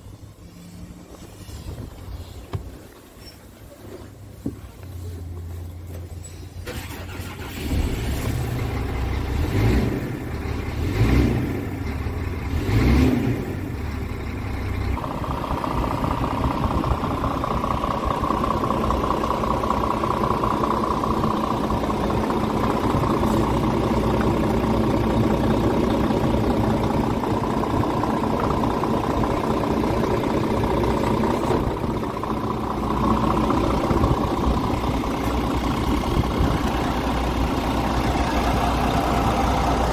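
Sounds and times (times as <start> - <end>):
diesel truck engine revving and idling: 4.9 - 39.9
constant whine: 13.5 - 39.9.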